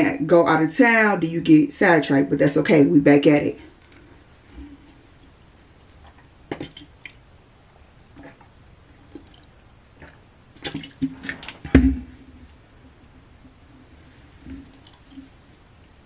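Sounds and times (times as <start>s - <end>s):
person gulping and swallowing: 8.0s - 12.2s
dull thump: 11.6s - 12.1s.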